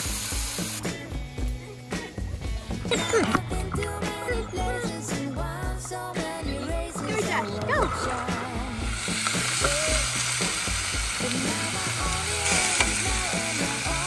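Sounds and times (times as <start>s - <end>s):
meat sizzling on a hotplate: 0.0s - 1.2s, 8.8s - 14.0s
background music with steady beat: 0.0s - 14.0s.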